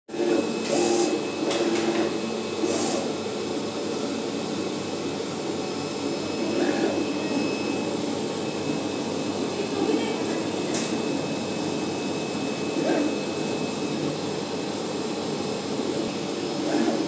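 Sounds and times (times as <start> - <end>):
flatbed cutter whirring hum: 0.1 - 17.0
motor whines of cutting head: 6.4 - 7.9, 12.5 - 13.9, 16.6 - 17.0.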